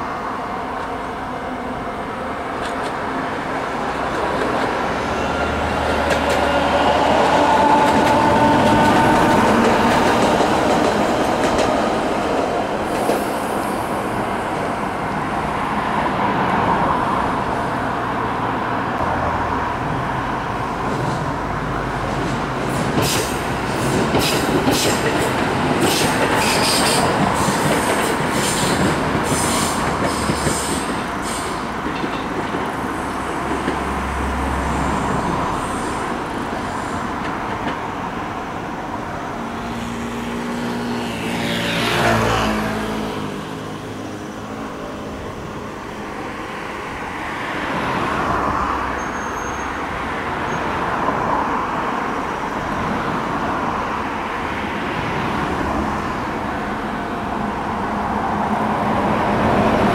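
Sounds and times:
train rumble: 0.0s - 17.8s, 19.0s - 48.6s.

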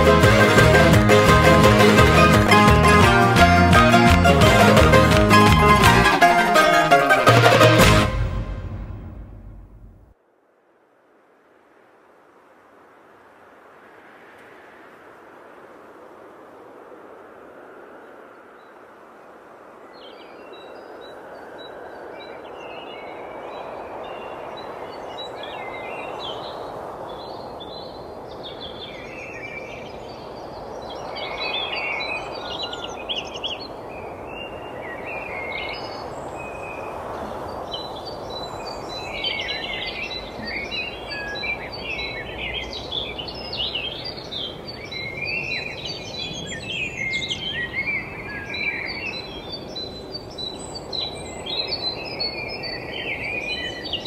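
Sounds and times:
steady rushing noise: 0.0s - 48.4s
small birds chirping: 20.0s - 54.0s.

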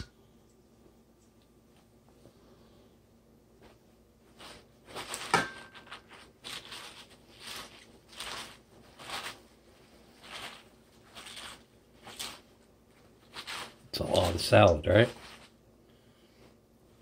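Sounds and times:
paper towel rustling: 3.6s - 15.6s.

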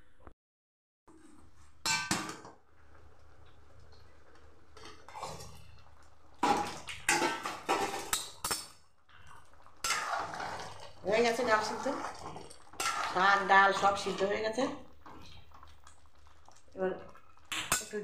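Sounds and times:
ladle knocking and scraping pot: 9.8s - 14.4s.

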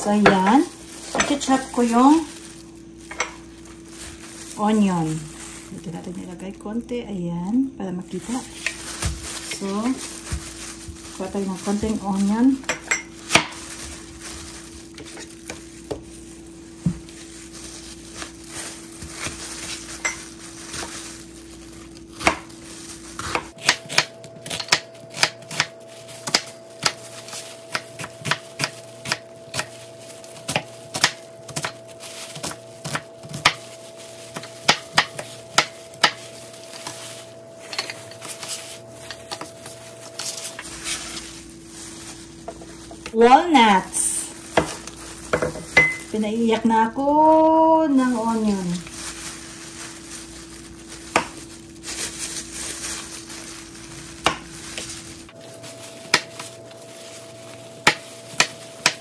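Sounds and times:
knife chopping on plastic board: 27.6s - 29.8s, 30.5s - 31.8s, 32.4s - 33.6s, 34.3s - 36.2s, 56.1s - 56.4s, 57.8s - 59.0s.

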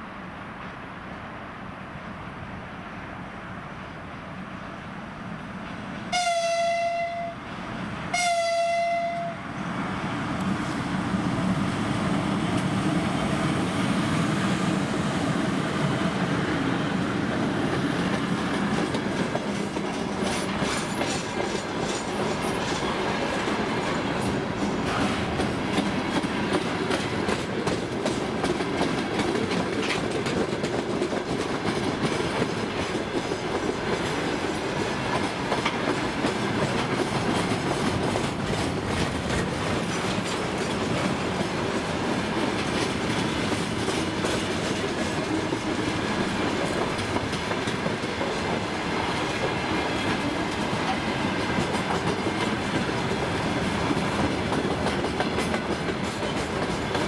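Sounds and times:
freight train rumbling past: 0.0s - 57.0s
locomotive horn blast: 6.1s - 7.4s, 8.1s - 9.4s
wheels clattering over rail joints: 18.1s - 48.6s.

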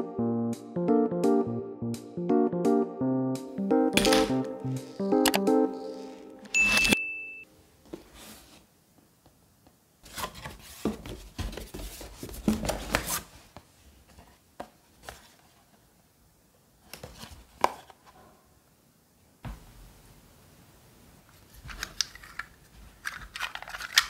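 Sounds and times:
cardboard rustling and scraping: 7.9s - 8.7s, 10.0s - 15.7s.

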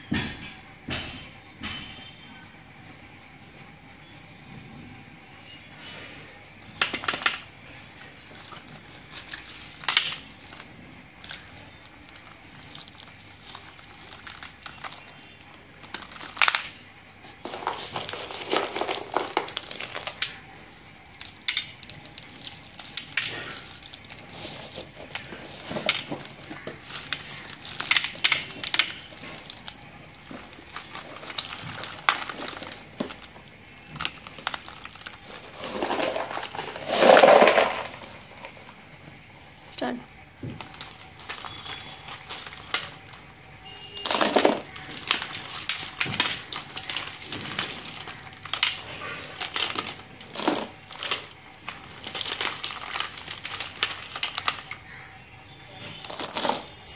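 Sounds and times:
plastic bag crinkling: 6.6s - 38.8s, 40.4s - 55.1s, 55.7s - 56.9s
sticks clicking and clattering: 8.3s - 38.6s, 40.5s - 43.3s, 44.0s - 54.9s.

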